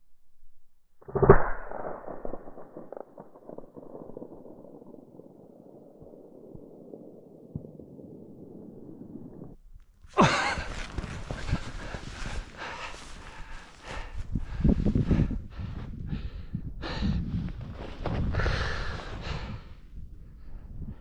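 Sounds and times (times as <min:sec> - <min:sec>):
rustling and handling in snow: 0:10.0 - 0:15.1, 0:17.4 - 0:19.7.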